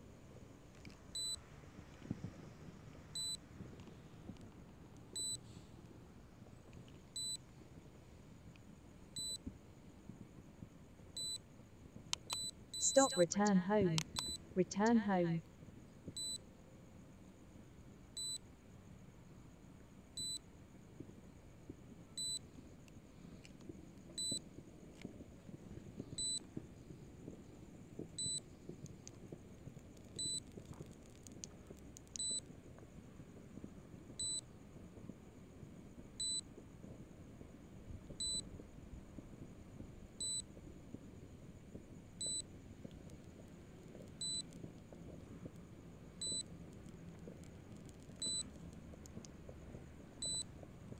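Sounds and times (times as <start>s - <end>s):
faint low background noise: 0.0s - 50.9s
short electronic warning beep: 12.8s - 14.9s.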